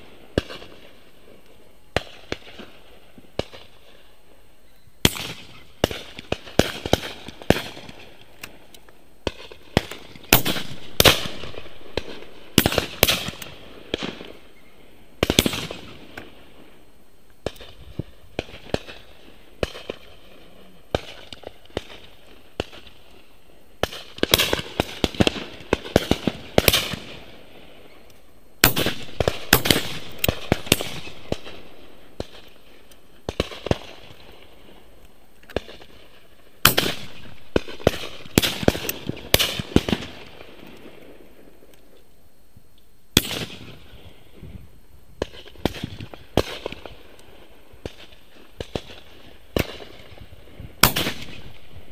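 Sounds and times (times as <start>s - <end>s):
shotguns firing with echo: 5.0s - 8.6s, 9.2s - 14.4s, 15.2s - 16.4s, 23.8s - 27.7s, 28.6s - 32.6s, 35.6s - 41.3s, 43.2s - 44.0s, 50.8s - 51.8s.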